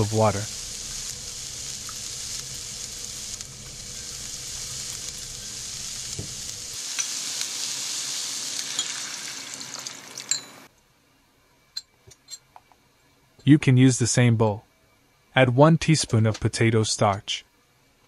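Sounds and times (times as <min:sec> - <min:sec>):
vegetables sizzling in frying pan: 0:00.0 - 0:10.3.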